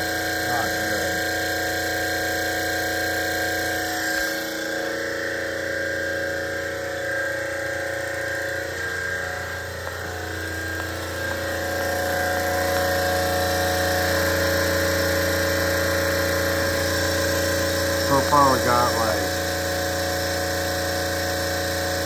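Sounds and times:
refrigeration compressor humming: 0:00.0 - 0:22.0
high whine: 0:03.6 - 0:20.0.

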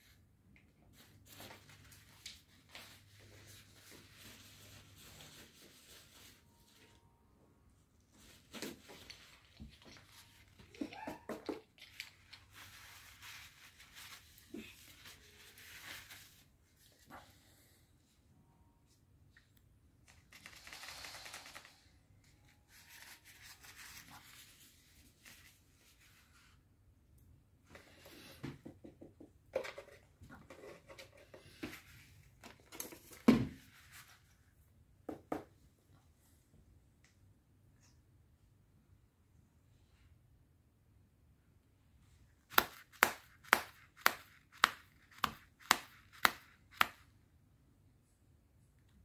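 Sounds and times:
parrot claws and beak tapping: 0:42.5 - 0:47.0.

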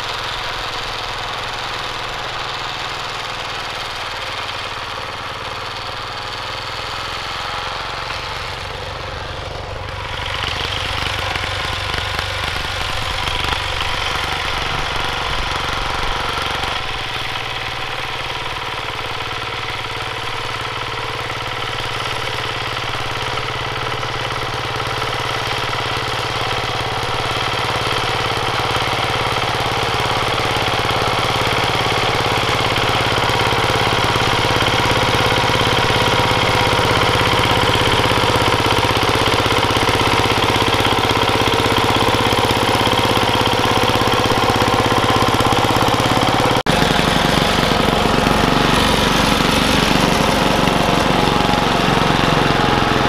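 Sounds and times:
diesel tractor engine running: 0:00.0 - 0:53.0.

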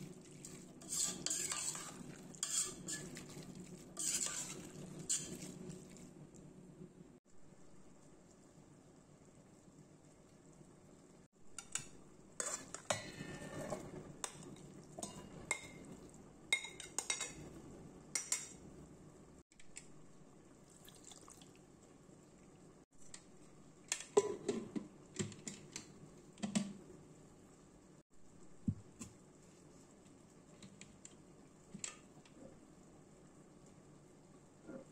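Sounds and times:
steel utensils clinking and scraping: 0:00.8 - 0:03.4, 0:04.0 - 0:05.6.

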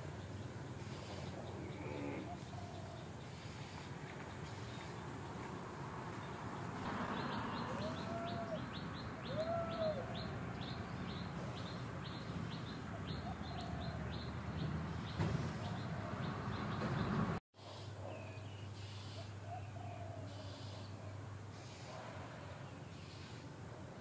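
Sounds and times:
bird chirping: 0:06.2 - 0:17.3.

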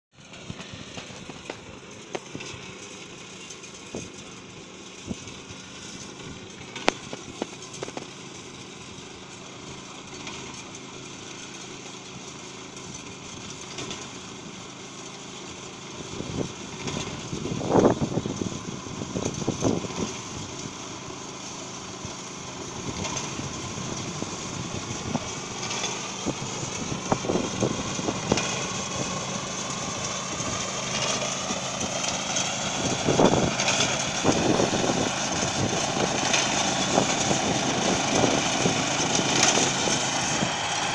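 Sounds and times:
harvester engine running: 0:00.2 - 0:40.9.

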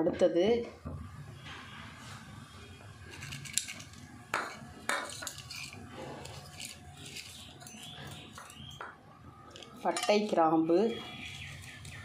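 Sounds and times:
kitchen utensils clinking: 0:03.1 - 0:08.8, 0:09.6 - 0:10.5.

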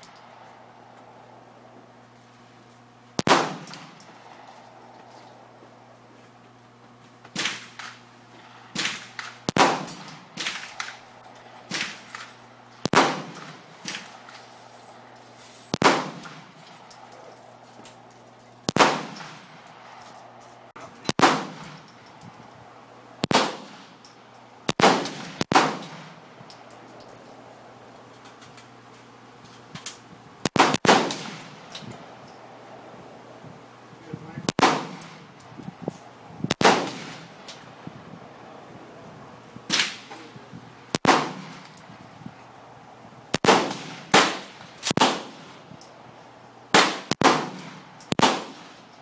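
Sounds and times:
handgun shots: 0:03.2 - 0:03.9, 0:24.7 - 0:26.0, 0:46.8 - 0:48.8.

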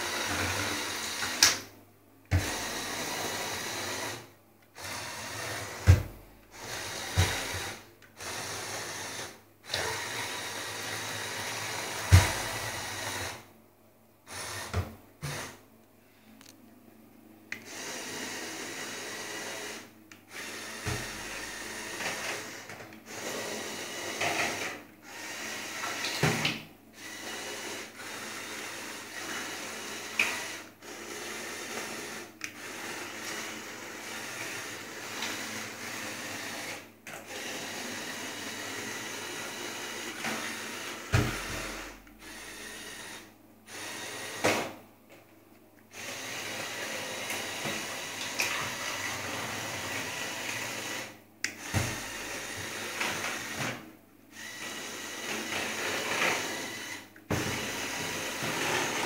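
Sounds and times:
small electric motor running: 0:54.3 - 0:59.0.

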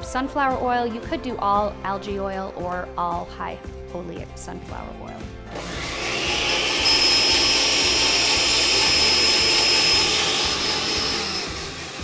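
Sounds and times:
blender motor whining: 0:05.5 - 0:12.0.

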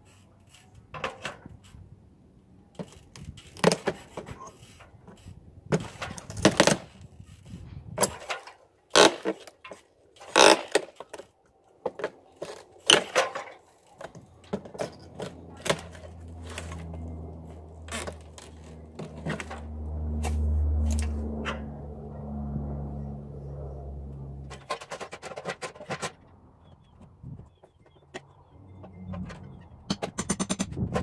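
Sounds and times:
hand tools scraping wood frame: 0:02.8 - 0:11.2, 0:11.9 - 0:21.7.

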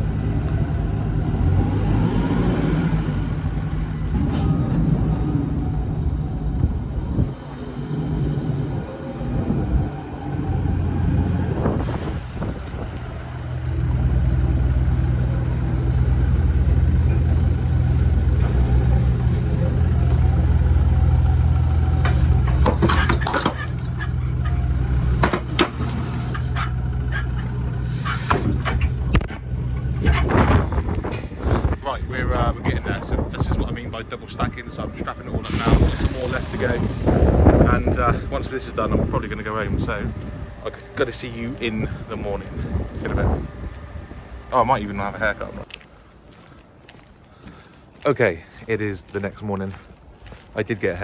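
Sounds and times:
forklift engine running: 0:00.0 - 0:47.2
knocks and clatter: 0:22.0 - 0:31.3.

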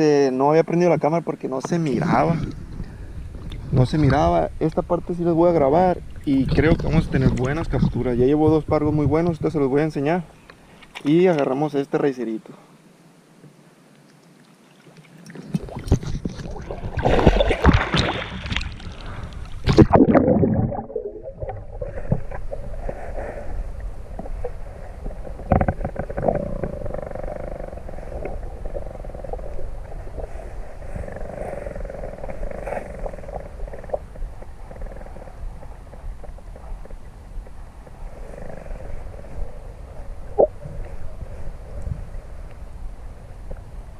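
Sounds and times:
dull underwater rumble: 0:02.0 - 0:10.0, 0:15.4 - 0:43.9
water splashing and churning: 0:14.4 - 0:22.9.

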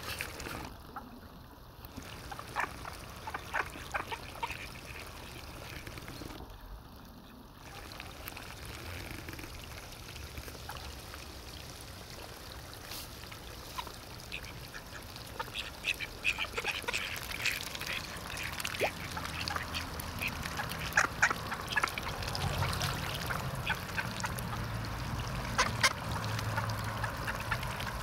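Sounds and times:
water splashing: 0:00.0 - 0:28.0
ducks quacking: 0:02.3 - 0:05.7, 0:13.7 - 0:28.0.

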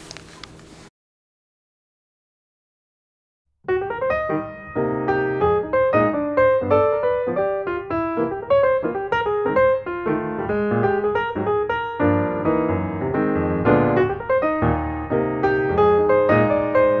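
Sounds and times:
piano music: 0:03.6 - 0:17.0.

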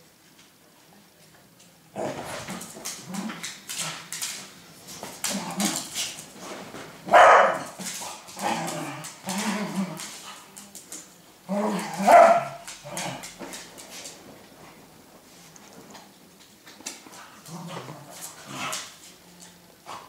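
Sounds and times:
dogs barking and growling: 0:07.0 - 0:10.7, 0:11.4 - 0:13.7.

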